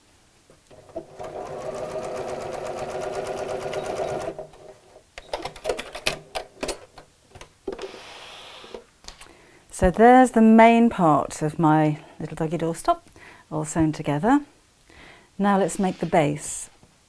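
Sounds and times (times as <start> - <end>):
sewing machine stitching: 0.7 - 4.6.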